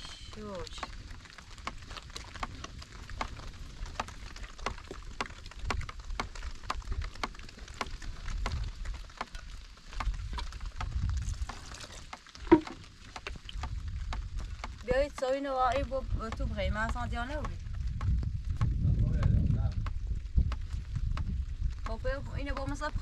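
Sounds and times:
raindrops pattering: 0.0 - 23.0
loud knock: 12.5 - 12.8.

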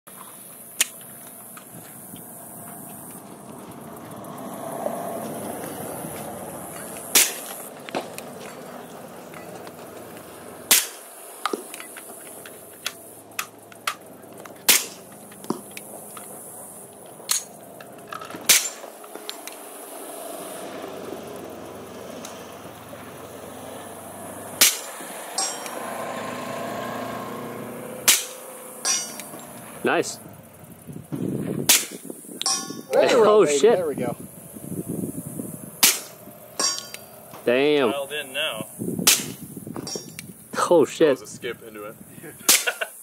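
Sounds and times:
suppressed pistol shots: 35.8 - 36.2.

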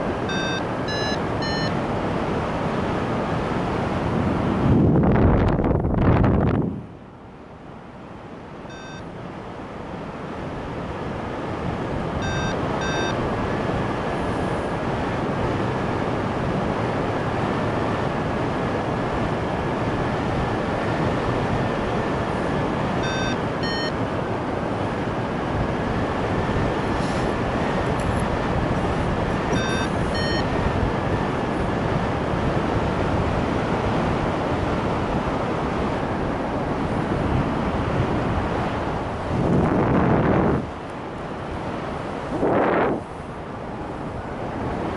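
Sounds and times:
short electronic beeps: 0.3 - 1.8, 8.7 - 9.1, 12.2 - 13.2, 23.0 - 24.0, 29.5 - 30.5
wind rushing over microphone: 1.2 - 7.1, 9.4 - 44.9.

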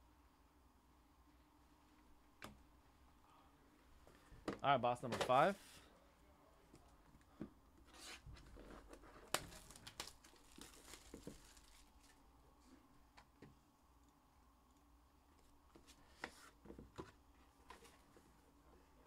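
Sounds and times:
plastic wrap crinkling: 8.5 - 12.2.

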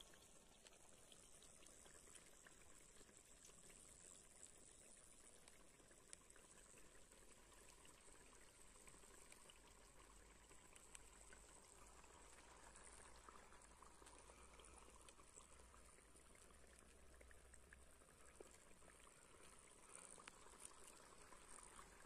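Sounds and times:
hot oil sizzling and crackling: 19.8 - 22.0.

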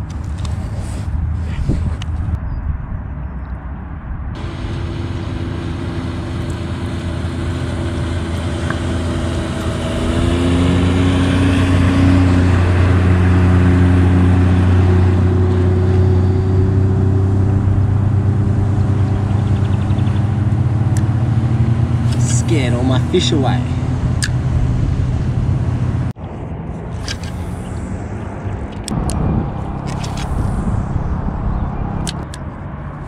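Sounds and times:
jet ski engine running: 4.4 - 26.1.

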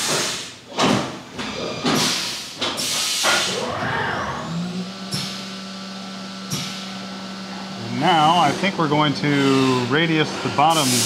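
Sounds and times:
pneumatic hissing bursts: 0.0 - 0.7, 1.9 - 3.7, 5.0 - 5.6, 6.4 - 7.0, 9.2 - 11.0
machine table tilting whine: 3.2 - 11.0.

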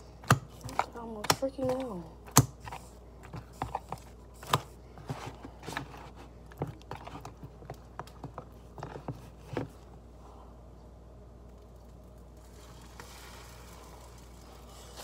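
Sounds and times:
hands handling bread in plastic dish: 2.6 - 9.9.

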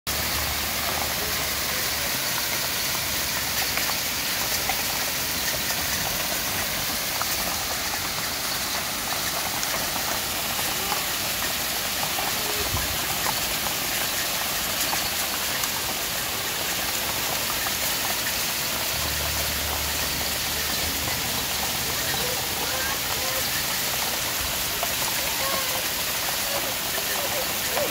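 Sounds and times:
hailstones ticking: 0.1 - 27.9
heavy rain on gravel and grass: 0.1 - 27.9.

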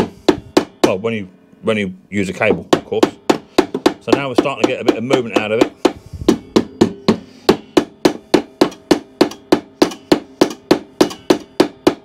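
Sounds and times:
mallet tapping metal: 0.0 - 1.0, 2.5 - 12.0.

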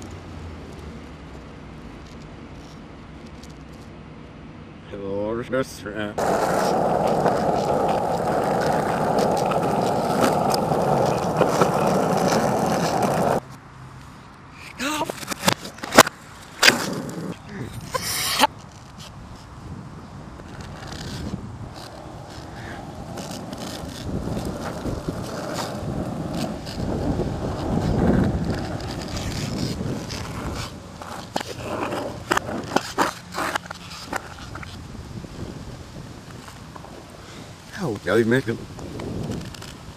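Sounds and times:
skateboard wheels rolling on asphalt: 0.0 - 4.1, 6.2 - 39.9
wind on microphone: 19.0 - 32.8, 34.4 - 37.2, 38.4 - 39.9.

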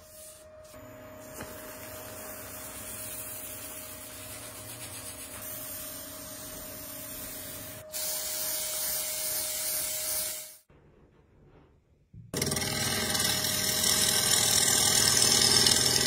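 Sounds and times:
cloth pad hissing on spinning resin: 1.4 - 7.8.

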